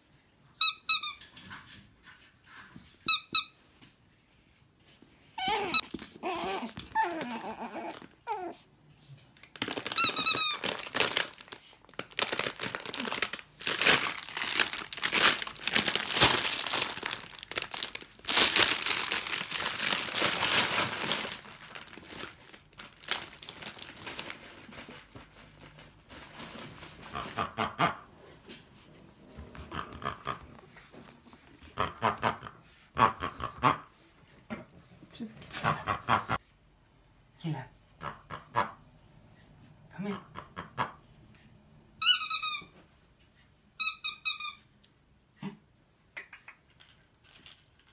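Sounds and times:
squeaky dog toy squeaking: 0.6 - 1.4, 3.0 - 3.6, 5.4 - 8.5, 9.7 - 11.2, 42.0 - 42.8, 43.8 - 44.7
rustling and crinkling: 1.2 - 27.6.

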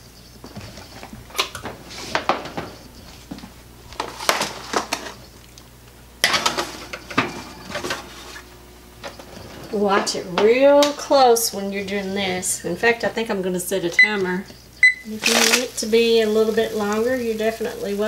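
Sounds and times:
oven door opening: 6.2 - 12.5.

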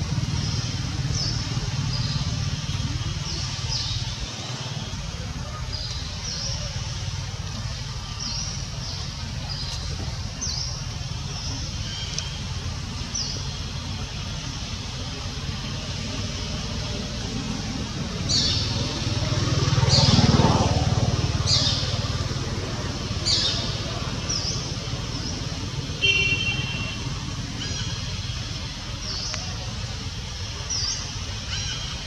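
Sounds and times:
bird calls: 23.2 - 29.9, 30.5 - 32.0.

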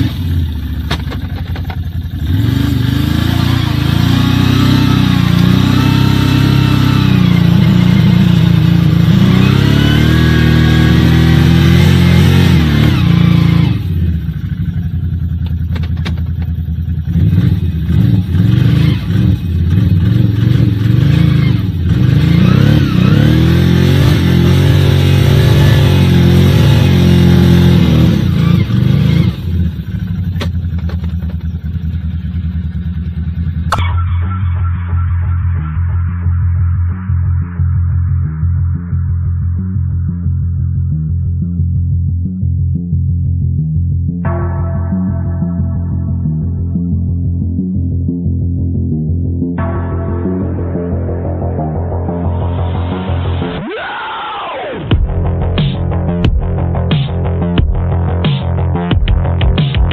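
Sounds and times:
quad engine revving: 0.0 - 14.8, 17.0 - 31.2.

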